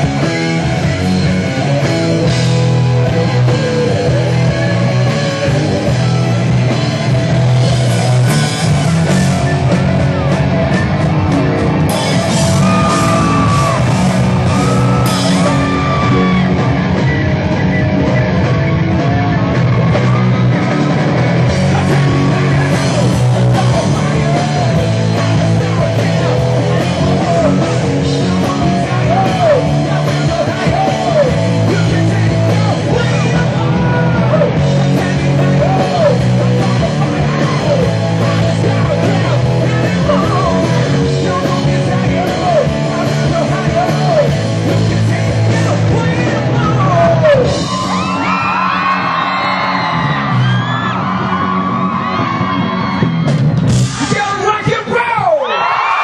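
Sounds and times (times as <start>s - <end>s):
bass line: 0.0s - 55.7s
live rock band playing: 0.0s - 55.8s
higher voices: 11.2s - 18.0s
man singing into a microphone: 21.7s - 48.2s.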